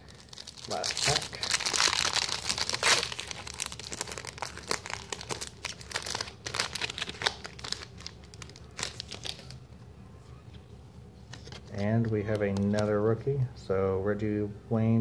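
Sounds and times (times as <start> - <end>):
card pack wrapper crinkling and tearing: 0.0 - 9.6.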